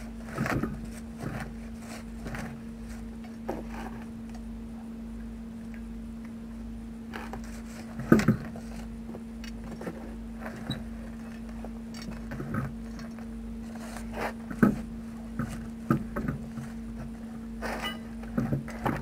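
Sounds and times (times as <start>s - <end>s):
steady low hum: 0.0s - 19.0s
tyre lever clanking on metal wheel: 17.7s - 18.2s.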